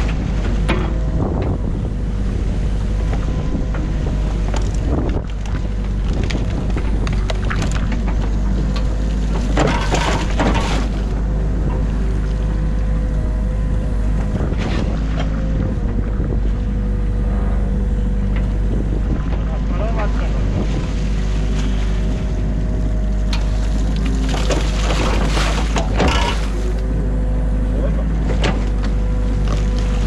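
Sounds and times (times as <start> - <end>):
diesel engine running: 0.0 - 30.0
excavator bucket knocks: 9.4 - 10.9, 24.9 - 26.5
hydraulic whine: 20.8 - 30.0
bucket crunching into mud: 23.8 - 26.6.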